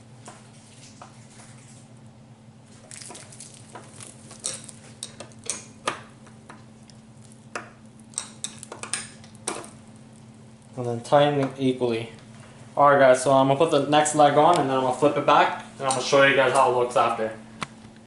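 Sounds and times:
steady low hum: 0.0s - 18.0s
plastic wrap crinkling: 2.7s - 5.0s.

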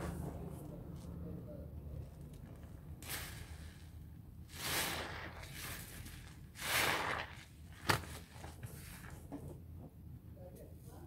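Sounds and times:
wet sponge squishing: 2.0s - 9.3s.

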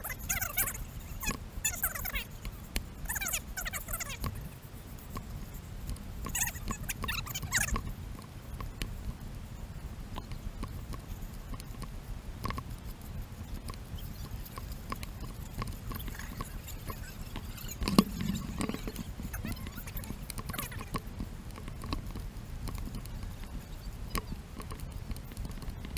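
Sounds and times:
wind rumble on microphone: 0.0s - 25.9s.

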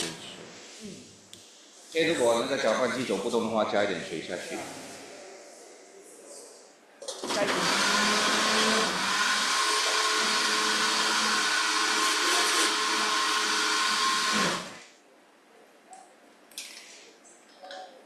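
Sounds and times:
electric chopper motor whining: 7.2s - 14.8s.

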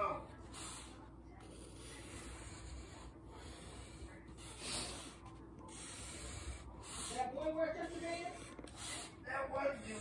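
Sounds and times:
drawing on poster board: 0.0s - 10.0s.

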